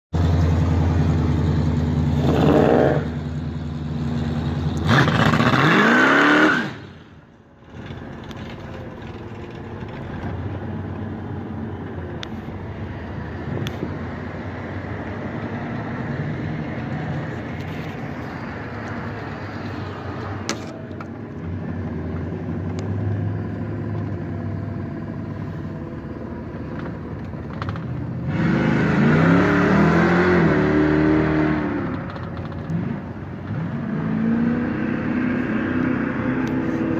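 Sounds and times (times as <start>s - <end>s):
road noise: 0.1s - 36.9s
car engine revving: 0.2s - 11.1s, 12.2s - 36.9s.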